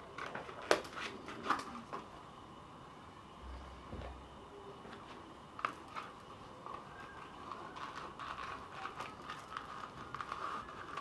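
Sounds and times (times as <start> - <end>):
leather belt rubbing and scraping: 5.6 - 11.0.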